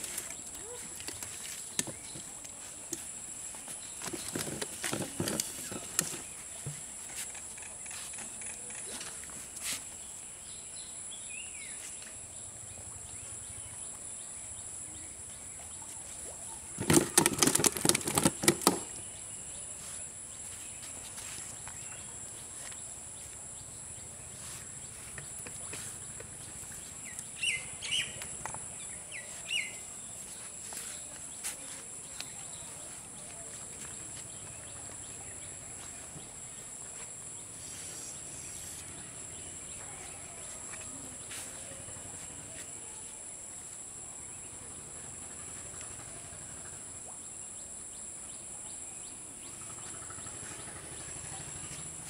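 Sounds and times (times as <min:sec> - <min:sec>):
birds chirping: 0:14.9 - 0:42.6
rapid clicks and knocks: 0:16.8 - 0:18.9.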